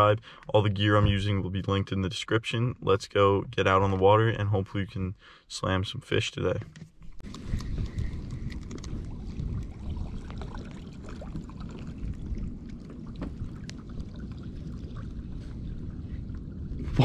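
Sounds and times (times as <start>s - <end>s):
steady low rumble: 7.2s - 17.0s
water lapping against kayak hull: 7.2s - 17.0s.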